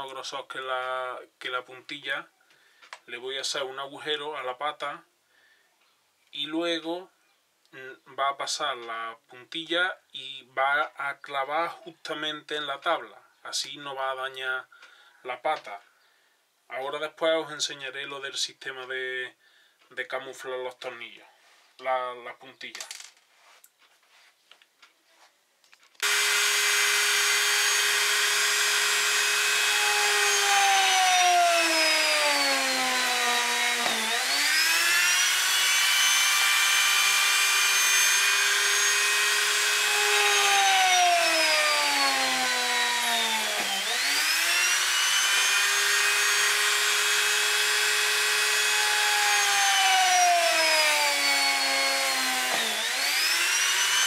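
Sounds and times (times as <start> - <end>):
rotary tool whining: 26.0 - 54.0.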